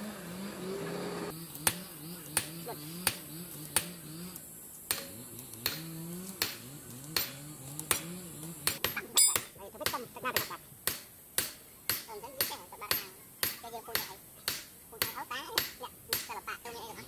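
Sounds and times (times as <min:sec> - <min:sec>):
hammer striking hot metal on anvil: 0:04.9 - 0:05.8, 0:07.2 - 0:09.5.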